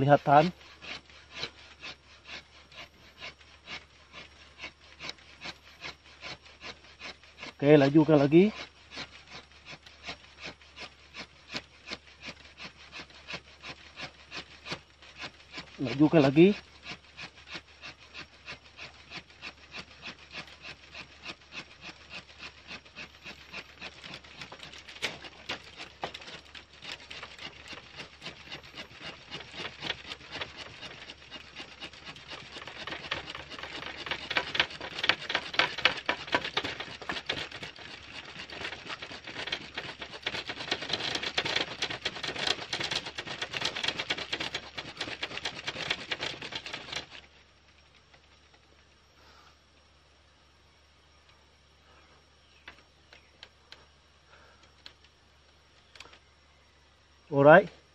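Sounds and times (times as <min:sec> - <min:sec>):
wooden stick scraping in groove: 0:00.0 - 0:49.4, 0:51.9 - 0:56.2.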